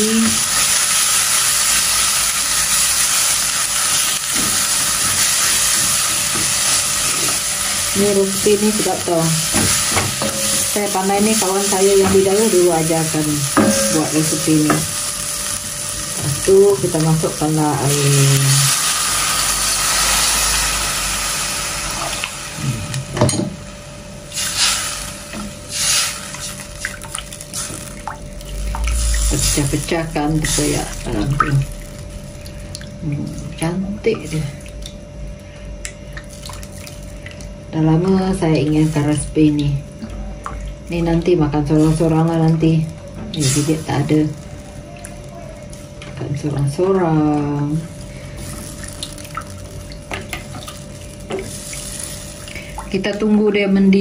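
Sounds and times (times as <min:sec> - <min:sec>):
paste sizzling in hot oil: 0:00.0 - 0:22.6, 0:24.2 - 0:32.7, 0:43.4 - 0:46.2, 0:47.5 - 0:53.2
water pouring into a pot: 0:00.0 - 0:22.6, 0:24.3 - 0:35.0, 0:36.0 - 0:37.6, 0:47.5 - 0:53.4.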